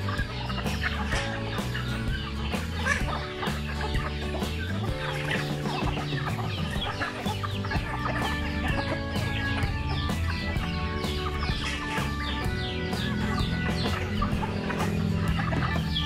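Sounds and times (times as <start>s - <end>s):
background music: 0.0s - 16.0s
chickens clucking: 0.0s - 16.0s
chicks peeping: 0.0s - 16.0s.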